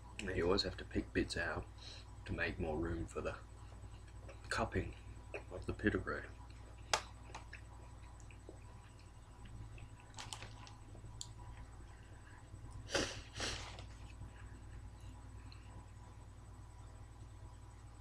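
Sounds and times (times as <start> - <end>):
man chewing: 6.3 - 15.9.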